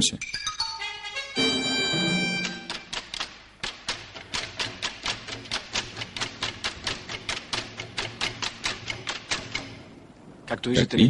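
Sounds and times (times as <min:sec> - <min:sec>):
train wheels clattering over rail joints: 0:03.0 - 0:10.0.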